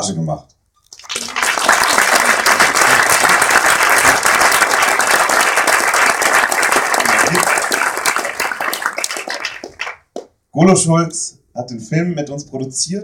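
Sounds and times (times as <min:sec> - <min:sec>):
audience applauding: 0:00.9 - 0:10.3.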